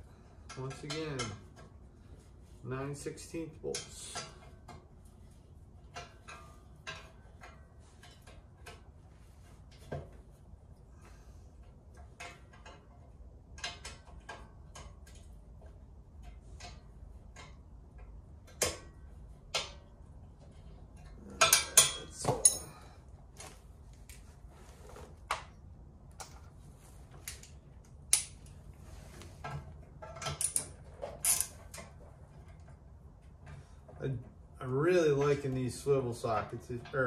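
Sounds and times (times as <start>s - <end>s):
ratchet metal clicks and clinks: 30.1s - 31.9s.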